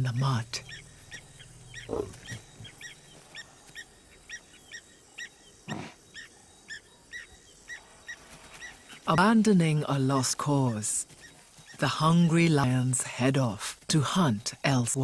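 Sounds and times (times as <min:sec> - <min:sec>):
buffalo snorting: 0:01.6 - 0:03.5, 0:05.7 - 0:06.0.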